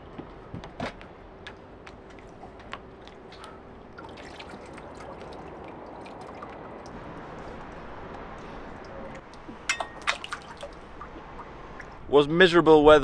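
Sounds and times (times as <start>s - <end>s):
water dripping and trickling: 3.0s - 12.1s.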